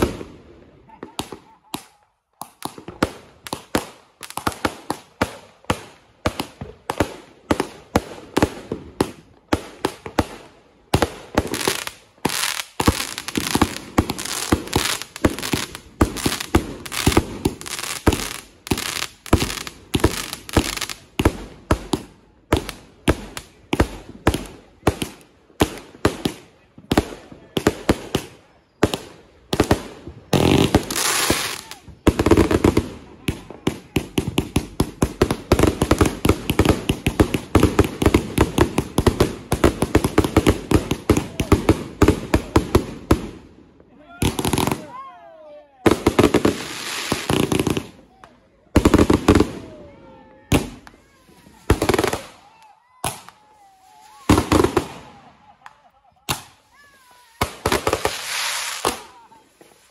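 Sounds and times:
fireworks crackling: 0.0 - 43.5, 44.2 - 45.0, 45.8 - 59.9
fireworks bangs and booms: 0.0 - 43.6, 44.2 - 45.0, 45.8 - 59.9.

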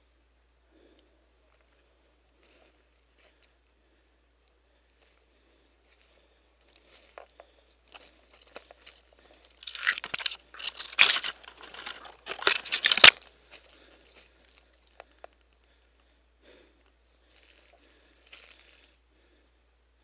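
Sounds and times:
twigs and leaves crackling: 4.4 - 16.1, 17.2 - 19.0
branch snapping: 9.6 - 13.2.

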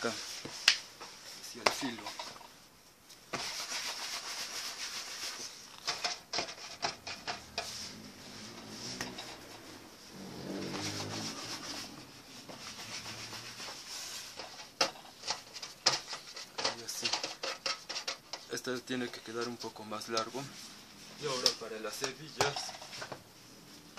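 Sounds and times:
dough scraping on metal sheet: 3.3 - 19.6.

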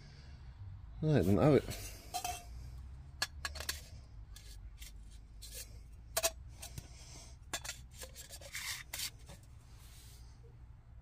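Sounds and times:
metal pipes clinking: 1.7 - 2.5, 5.4 - 6.8.

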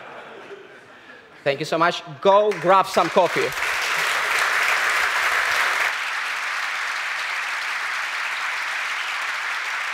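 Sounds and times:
audience applauding: 2.5 - 9.9.

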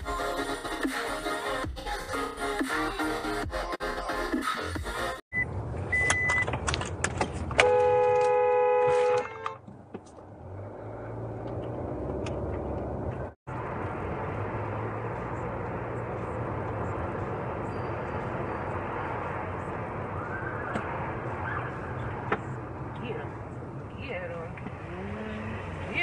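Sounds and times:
car engine and road noise: 5.0 - 26.0
car horn: 7.6 - 9.6.

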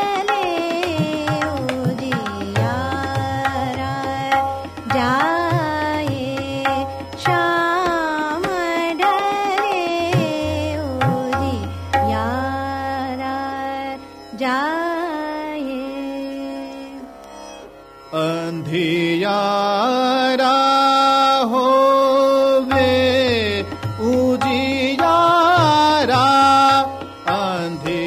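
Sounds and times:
person singing long ornamented notes: 0.0 - 17.1, 18.1 - 28.0.

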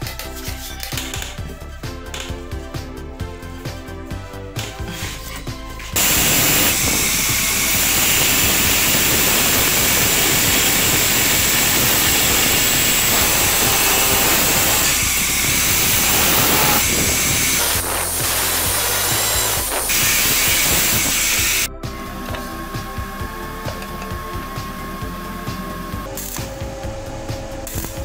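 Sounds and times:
music: 0.0 - 28.0
angle grinder cutting steel: 4.8 - 26.7.

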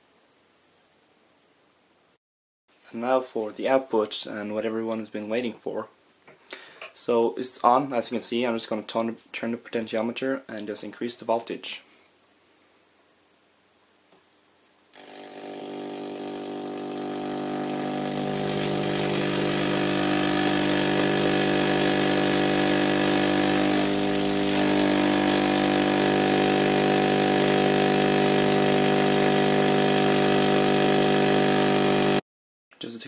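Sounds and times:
tesla coil spark buzzing: 15.0 - 32.2.

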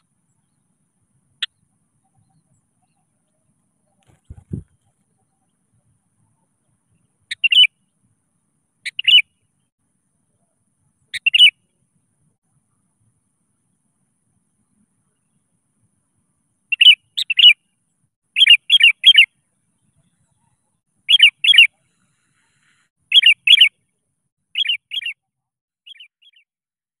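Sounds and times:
bird calling clear notes: 6.2 - 7.8, 8.8 - 9.4, 11.1 - 11.6, 16.7 - 17.6, 18.4 - 19.3, 20.2 - 23.7, 24.6 - 26.5.

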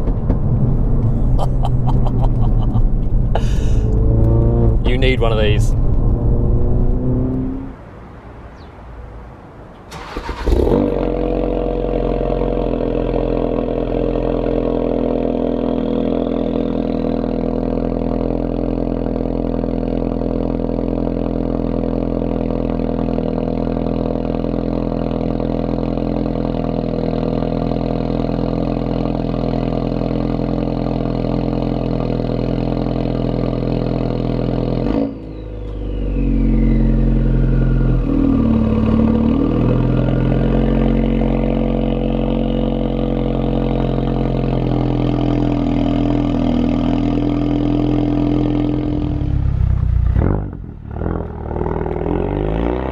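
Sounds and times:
car engine cranking and starting: 0.0 - 7.7, 9.7 - 11.6
car engine fast idle: 9.9 - 10.7.

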